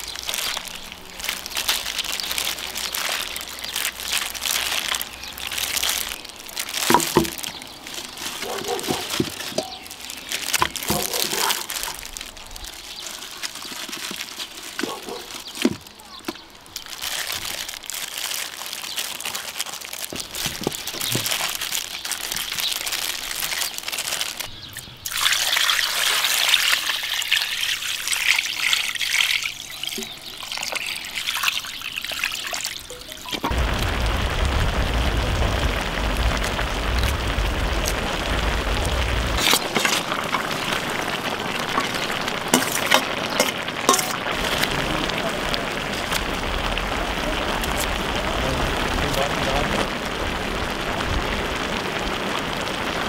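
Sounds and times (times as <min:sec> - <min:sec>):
water pouring into pan: 0:00.0 - 0:15.8, 0:25.1 - 0:53.0
soft wet squishing: 0:00.0 - 0:24.5
bones knocking: 0:06.8 - 0:07.5.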